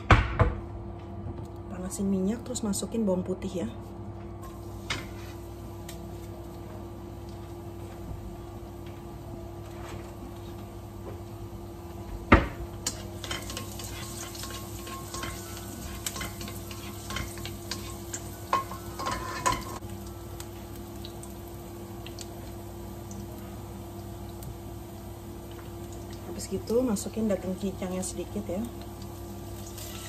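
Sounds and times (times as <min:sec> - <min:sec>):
steady hum: 0:00.0 - 0:30.0
garlic sizzling in hot oil: 0:04.4 - 0:08.0, 0:12.7 - 0:30.0
spatula scraping a wok: 0:04.9 - 0:05.4, 0:12.8 - 0:19.8, 0:29.8 - 0:30.0.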